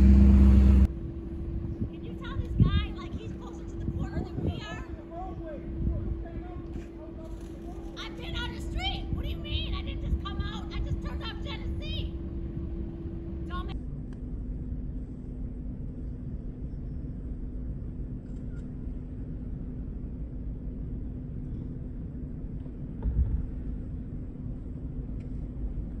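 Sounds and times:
vehicle engine running: 0.0 - 13.8.

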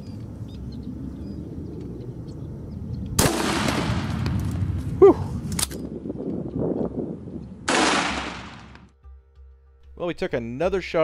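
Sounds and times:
shotgun firing: 3.2 - 4.3, 7.7 - 8.8.

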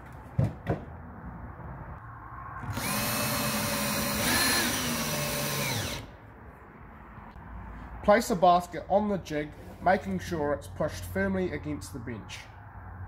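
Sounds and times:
cordless drill motor whine: 2.6 - 6.1.

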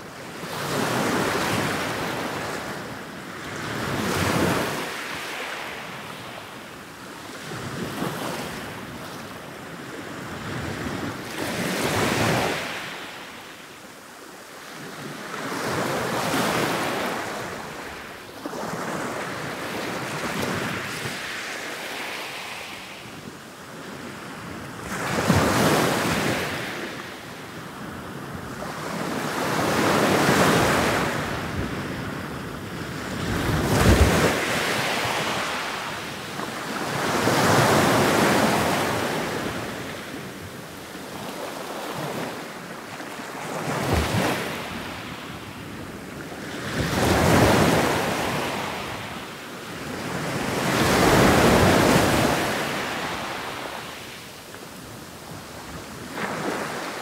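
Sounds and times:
ocean waves breaking: 49.9 - 54.1.

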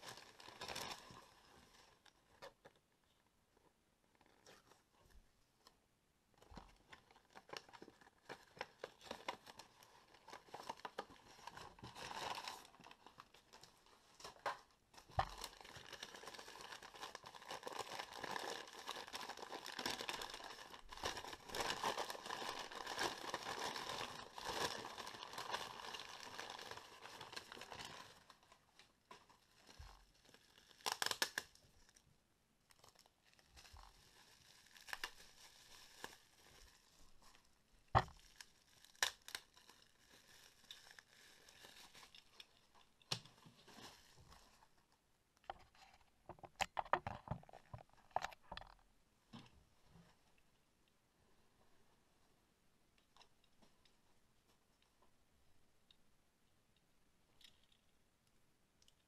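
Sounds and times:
newspaper crumpling and tearing: 0.0 - 2.5, 6.7 - 32.0, 32.7 - 44.8.

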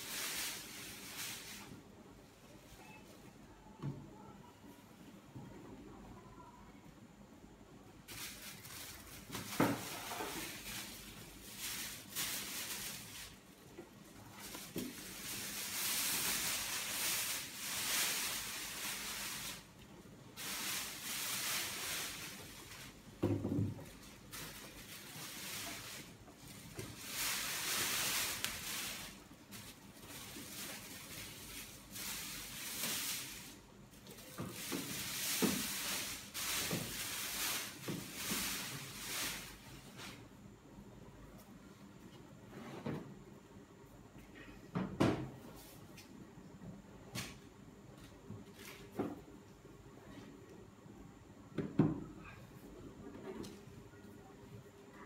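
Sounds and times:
plastic wrapping film crinkling: 8.0 - 13.6, 14.2 - 39.6.

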